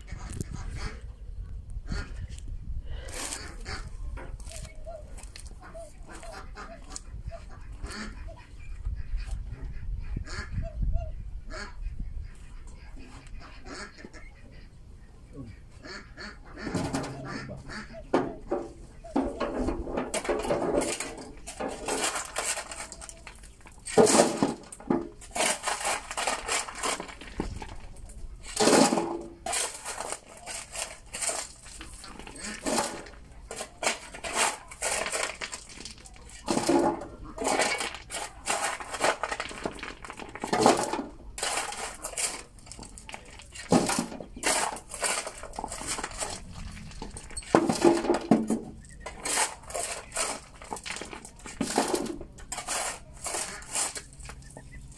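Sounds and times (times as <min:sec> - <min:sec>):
shovel scraping crushed stone: 0:03.0 - 0:07.0, 0:18.5 - 0:54.9
stones clattering into wheelbarrow: 0:03.0 - 0:07.0, 0:16.6 - 0:54.9.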